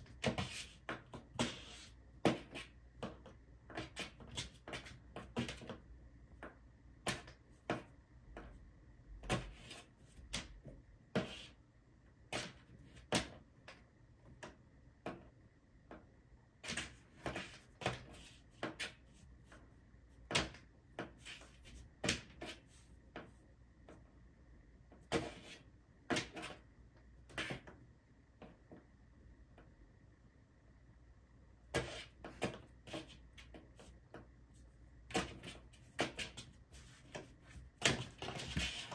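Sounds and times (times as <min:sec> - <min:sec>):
kitten scratching cardboard box: 0:00.0 - 0:05.8, 0:31.7 - 0:34.0, 0:35.0 - 0:38.9.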